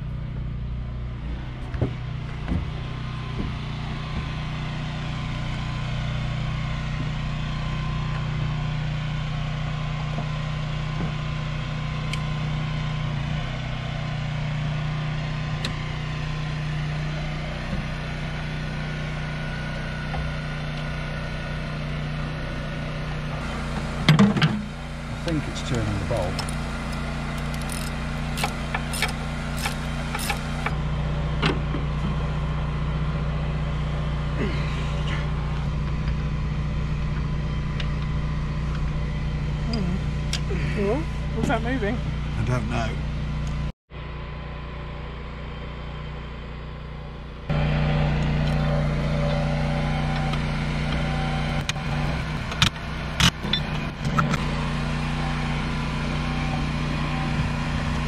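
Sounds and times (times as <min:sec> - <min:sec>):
low machine hum: 0:00.0 - 0:58.0
ratchet wrench clicking: 0:26.4 - 0:30.5.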